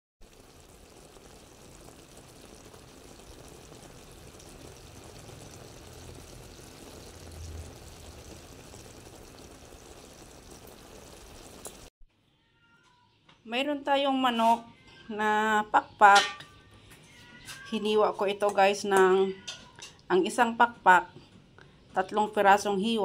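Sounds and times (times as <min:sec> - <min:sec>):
thick sauce bubbling in a pan: 0:00.2 - 0:11.9.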